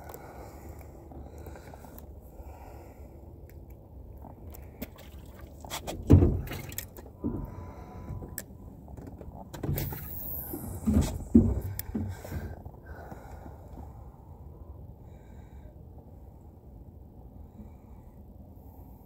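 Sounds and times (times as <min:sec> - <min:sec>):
knocks in a small boat: 0:05.9 - 0:08.3, 0:10.6 - 0:12.6.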